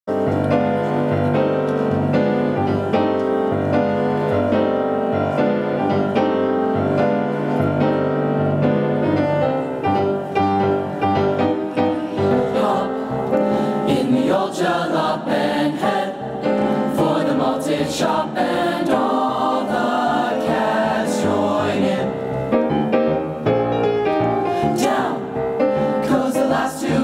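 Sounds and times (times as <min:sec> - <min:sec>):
grand piano swing chords: 0:00.1 - 0:27.0
choir singing: 0:11.2 - 0:22.6, 0:24.6 - 0:27.0.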